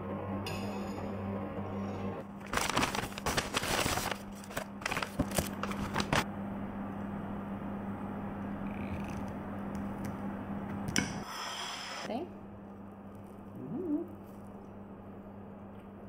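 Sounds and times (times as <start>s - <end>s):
steady low hum: 0.0s - 11.3s, 12.0s - 16.0s
cardboard and paper rustling: 2.3s - 6.2s.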